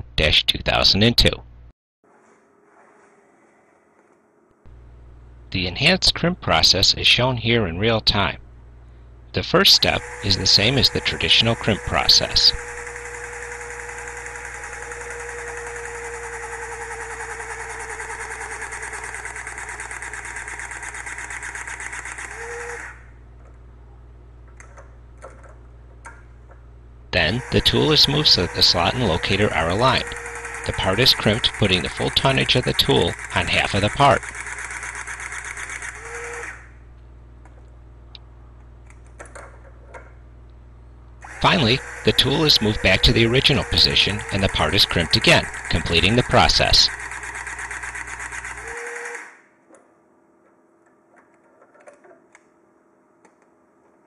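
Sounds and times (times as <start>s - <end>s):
hydraulic crimping tool motor drone: 9.7s - 23.1s, 27.2s - 36.8s, 41.2s - 49.4s.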